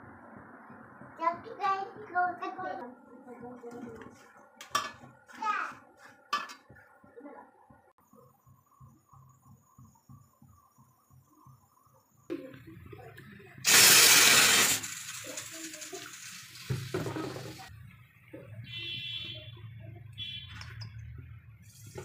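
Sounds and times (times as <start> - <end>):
loud hiss: 13.6 - 17.7
oil pouring into frying pan: 13.7 - 17.6.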